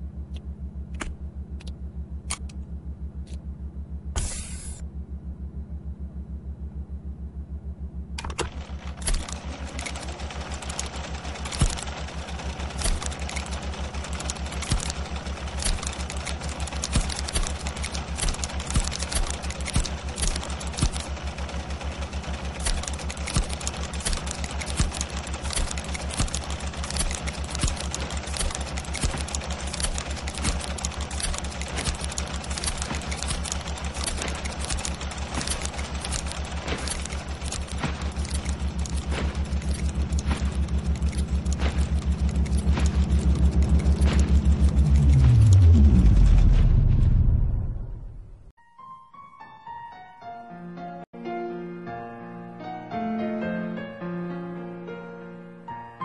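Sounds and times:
mechanical ticking pulse: 8.2s - 46.6s
machinery clicking and rattling: 8.2s - 47.1s.

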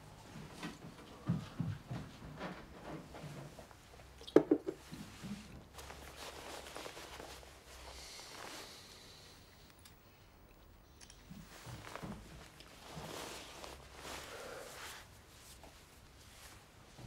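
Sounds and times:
padded jacket rustling: 5.0s - 8.9s, 11.4s - 17.0s.

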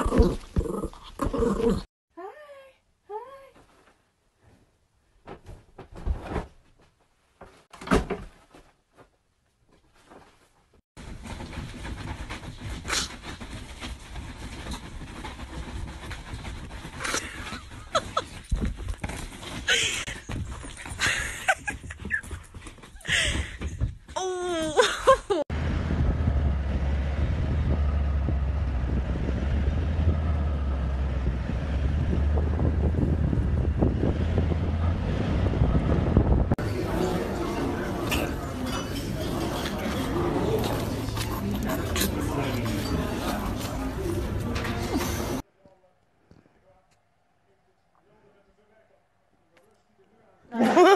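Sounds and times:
rustling: 3.6s - 24.2s
vehicle driving on dirt road: 25.5s - 45.4s
wind on microphone: 31.1s - 36.6s.

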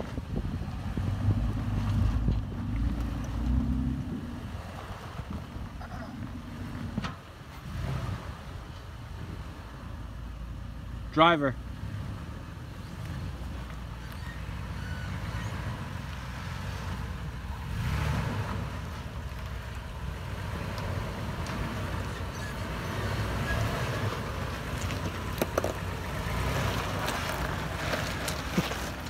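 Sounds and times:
truck engine running at low revs: 0.0s - 29.0s.

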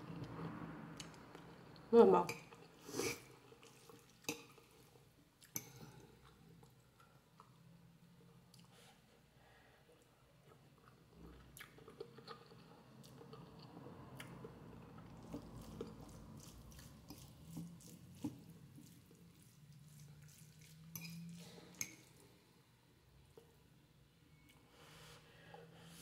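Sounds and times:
person chewing noodles: 2.5s - 8.9s, 9.9s - 22.4s.

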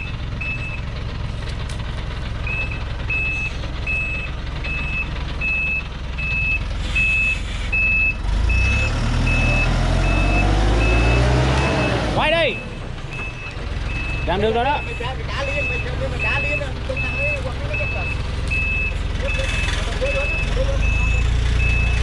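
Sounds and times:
truck reversing alarm beeps: 0.0s - 1.0s, 2.4s - 22.0s
truck engine running and revving: 0.0s - 22.0s.

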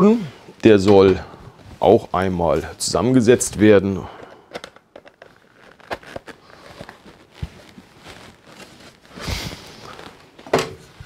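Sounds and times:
plastic pieces clicking: 4.5s - 6.2s.

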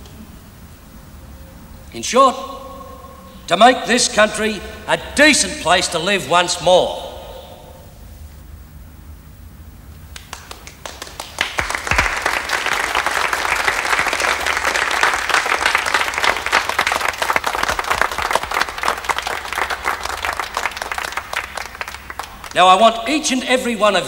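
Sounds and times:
audience applauding: 10.1s - 22.8s.

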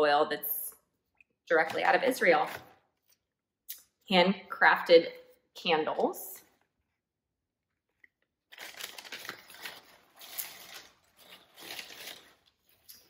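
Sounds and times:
paper packaging rustling: 8.5s - 13.0s.

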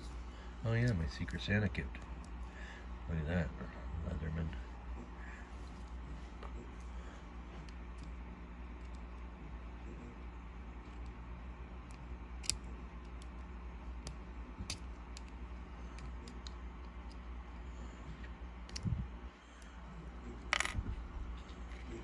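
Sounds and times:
pliers clicking on metal clip: 12.4s - 12.6s.

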